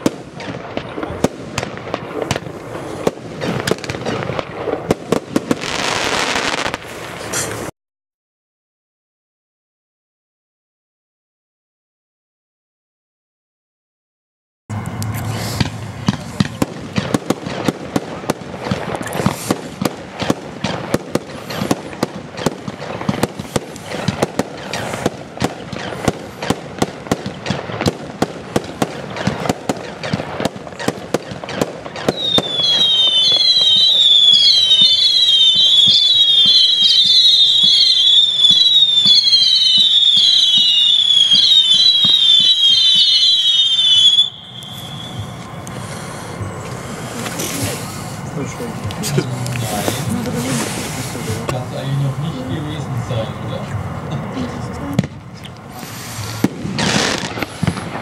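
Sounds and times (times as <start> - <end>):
firework shots and bangs: 0.0 - 7.7, 15.5 - 45.4, 54.9 - 58.0
shrill firework whistles: 5.4 - 7.7, 18.9 - 28.0, 28.8 - 48.1, 55.7 - 58.0.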